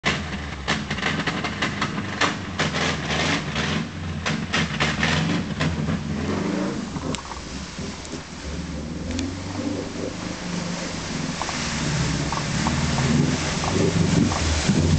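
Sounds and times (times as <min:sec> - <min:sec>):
car engine revving unevenly: 0:00.0 - 0:14.9.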